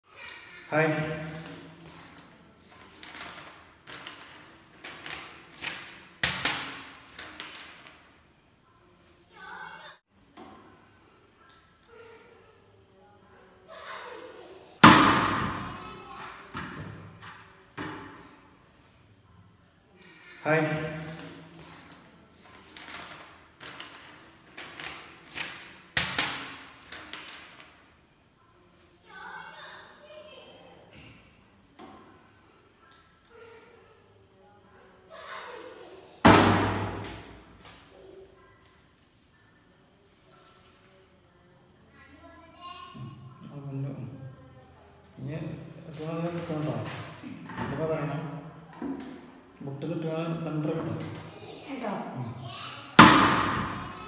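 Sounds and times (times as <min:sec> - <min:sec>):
sharp paper crack: 0:01.3 - 0:08.0, 0:21.0 - 0:27.8
paper rustling and crackling: 0:01.3 - 0:08.1, 0:21.1 - 0:27.8.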